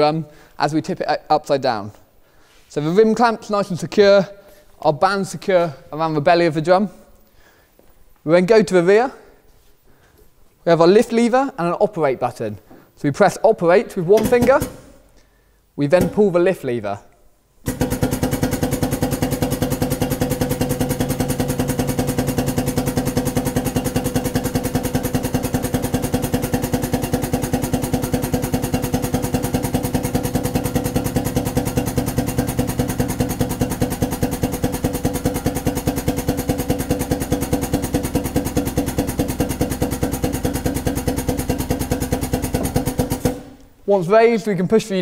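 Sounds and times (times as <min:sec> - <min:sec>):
pneumatic lift pulsing: 0:17.6 - 0:43.6.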